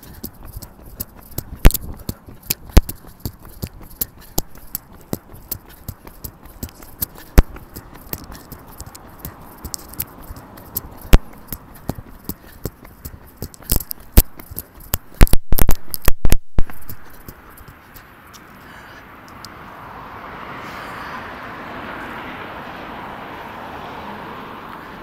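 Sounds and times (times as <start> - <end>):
camera microphone handling noise: 13.5 - 17.2.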